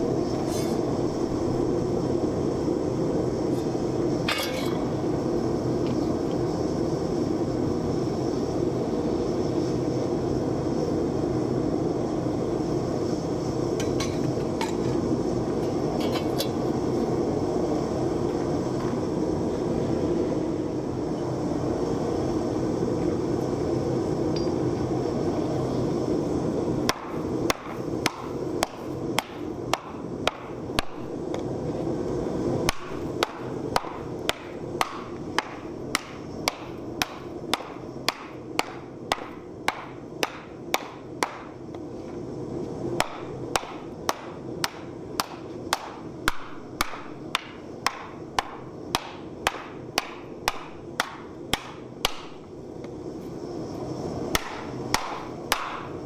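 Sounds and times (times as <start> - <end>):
hammer blows on hot steel: 0.0 - 5.2, 26.8 - 31.5, 32.6 - 41.7, 43.0 - 52.6, 54.3 - 56.0.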